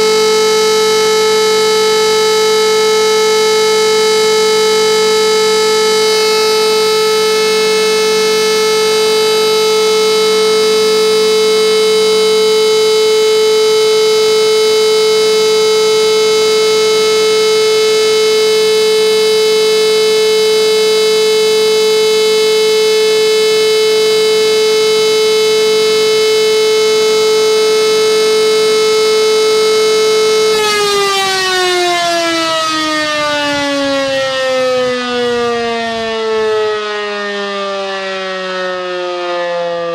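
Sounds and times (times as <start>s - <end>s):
steady siren tone: 0.0s - 39.9s.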